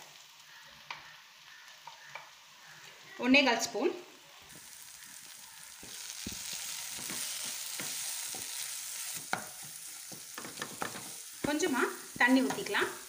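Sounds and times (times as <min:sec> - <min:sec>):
masala sizzling in oil: 0:00.0 - 0:13.0
spatula scraping and knocking pan: 0:05.7 - 0:12.9.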